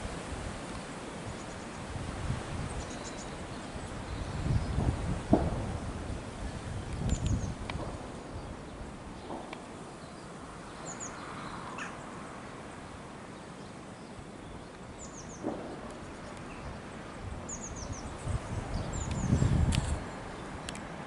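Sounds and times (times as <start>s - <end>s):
steady outdoor hiss: 0.0s - 21.0s
small birds chirping: 2.6s - 5.3s, 6.8s - 12.4s, 13.3s - 21.0s.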